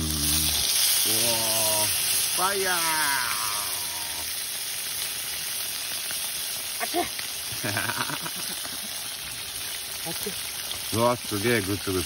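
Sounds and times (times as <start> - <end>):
soup sizzling in a hot skillet: 0.0 - 12.0.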